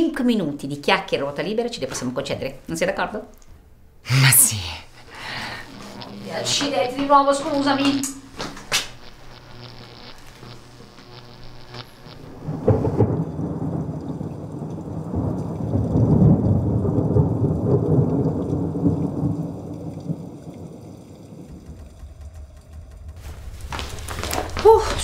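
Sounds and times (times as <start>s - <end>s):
thunder rumbling: 11.2s - 25.0s.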